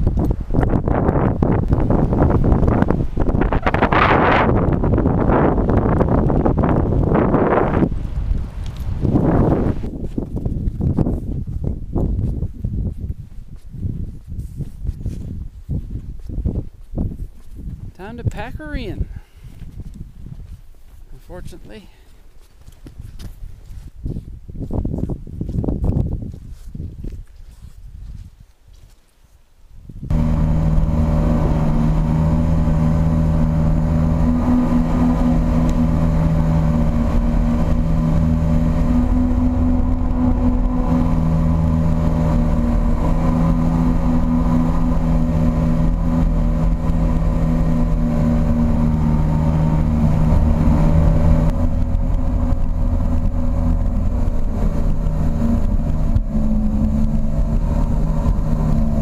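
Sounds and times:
water rushing past hull: 0.0 - 10.0, 30.1 - 59.0
motorboat engine running: 0.0 - 12.4, 30.1 - 59.0.

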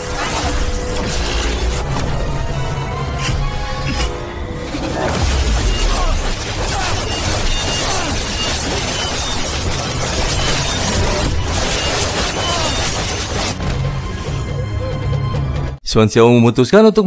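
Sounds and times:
dramatic music: 0.0 - 15.8
magic energy clash effects: 4.8 - 14.0.

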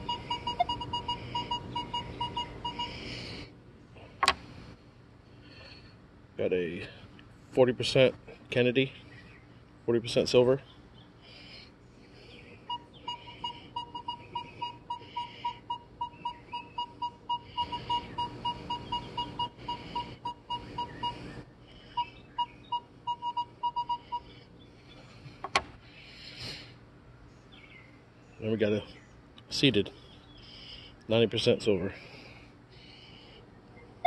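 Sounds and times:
metal detector short beeps: 0.0 - 2.9, 12.7 - 21.1, 22.4 - 24.2.

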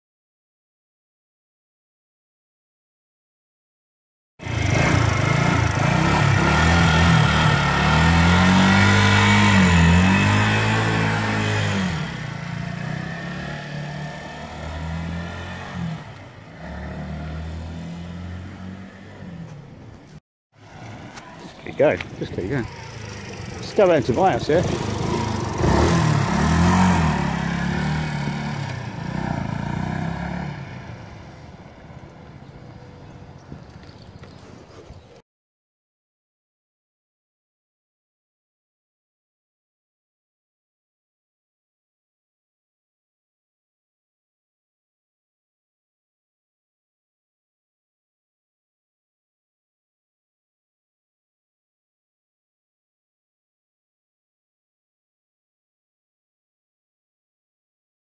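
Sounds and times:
motorcycle engine revving: 4.4 - 19.7, 22.2 - 31.2.

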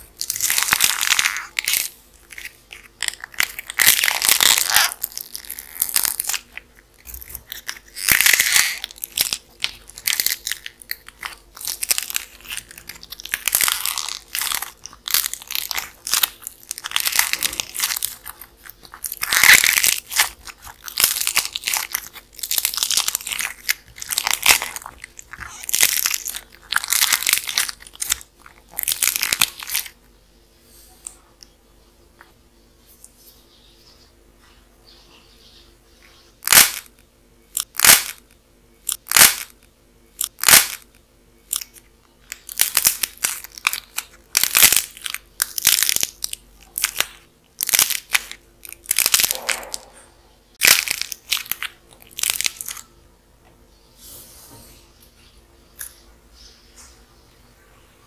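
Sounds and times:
dried clay crackling and crunching: 0.0 - 30.0, 36.4 - 50.0, 50.6 - 52.9.

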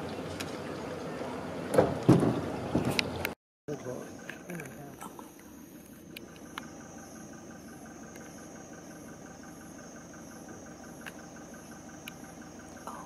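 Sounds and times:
low steady rumble: 0.0 - 13.0
pulsing insect calls: 2.6 - 13.0
insects trilling: 3.7 - 13.0.

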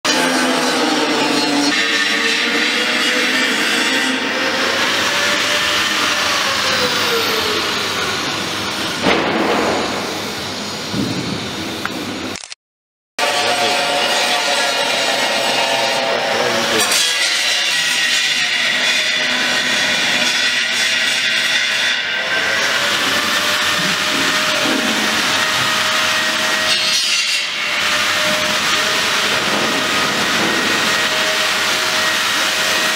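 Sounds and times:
workshop machinery rushing: 0.1 - 12.2, 13.2 - 32.9
sharp knock: 9.0 - 10.2.

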